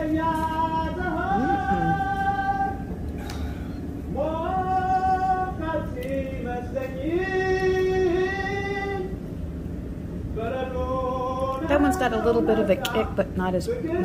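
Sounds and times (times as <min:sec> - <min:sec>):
woman singing long held notes: 0:01.0 - 0:02.8.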